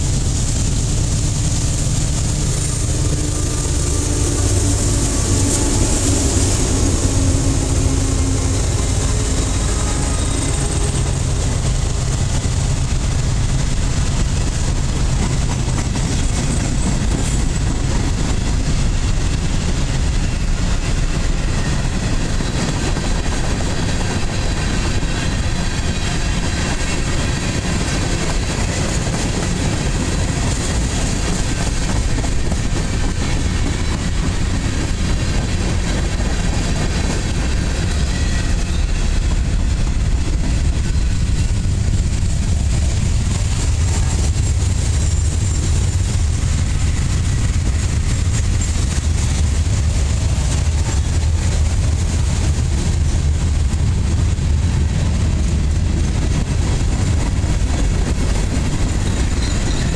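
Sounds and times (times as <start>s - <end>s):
freight train wheels rumbling on rails: 0.0s - 59.9s.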